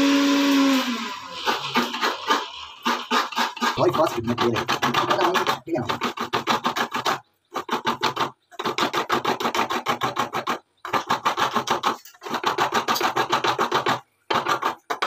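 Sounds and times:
coconut scraping by hand: 0:00.1 - 0:15.0.

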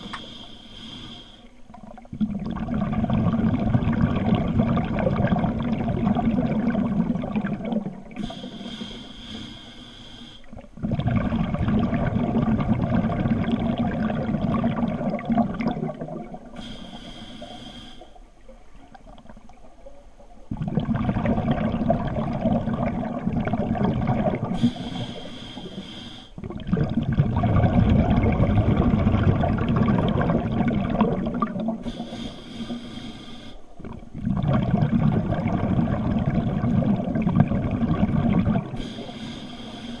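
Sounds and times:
regulator hissing inhale: 0:00.0 - 0:01.6, 0:08.2 - 0:10.5, 0:16.6 - 0:18.3, 0:24.6 - 0:26.4, 0:31.8 - 0:33.8, 0:38.7 - 0:40.0
exhaled air bubbling: 0:00.0 - 0:09.6, 0:10.3 - 0:40.0.

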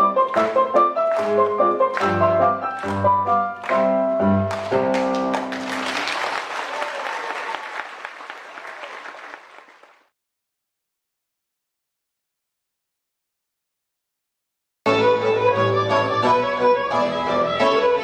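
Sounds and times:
piano music with deep bass: 0:00.0 - 0:05.8, 0:14.9 - 0:18.0
audience applause: 0:00.2 - 0:10.1.

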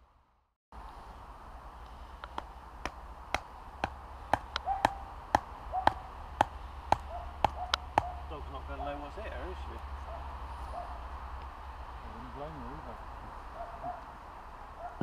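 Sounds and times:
mallet knocking tent peg: 0:02.4 - 0:08.1.

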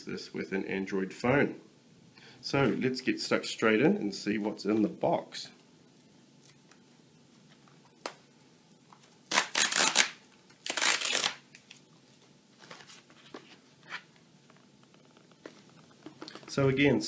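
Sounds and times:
cardboard tear strip ripping: 0:09.2 - 0:11.5.

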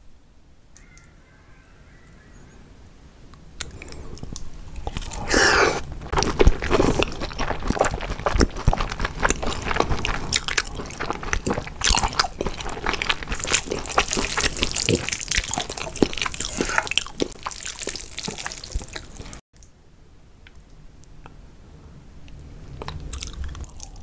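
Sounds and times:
noodles squelching: 0:04.8 - 0:19.4.

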